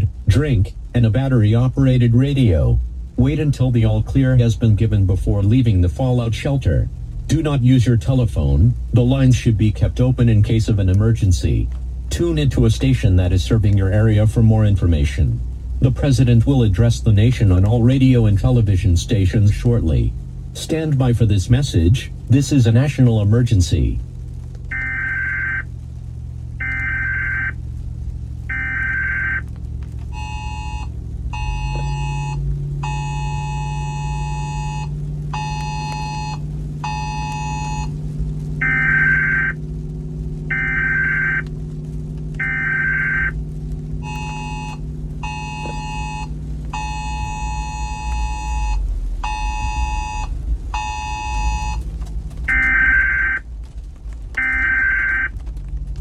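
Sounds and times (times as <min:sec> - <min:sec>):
low electronic drone: 0:00.0 - 0:56.0
high electronic beeps: 0:30.2 - 0:37.9, 0:38.6 - 0:39.6, 0:40.5 - 0:41.4, 0:42.4 - 0:43.4, 0:44.0 - 0:51.8, 0:52.5 - 0:53.4, 0:54.4 - 0:55.3
pulsed two-tone bleeps: 0:30.2 - 0:37.9, 0:38.6 - 0:39.6, 0:40.5 - 0:41.4, 0:42.4 - 0:43.4, 0:44.0 - 0:51.8, 0:52.5 - 0:53.4.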